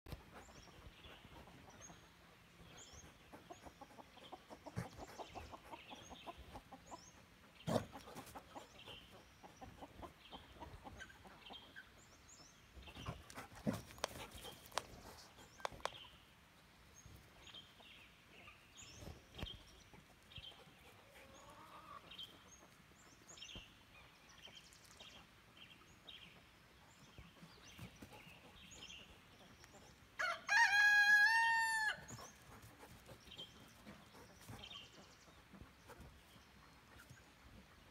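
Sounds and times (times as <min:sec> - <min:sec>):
hens clucking: 0:03.0 - 0:12.0, 0:20.0 - 0:22.8.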